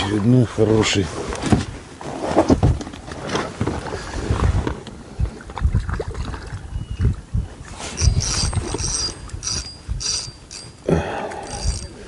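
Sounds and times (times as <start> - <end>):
water splashing and sloshing: 0.0 - 10.8
rustling reeds: 7.7 - 10.8.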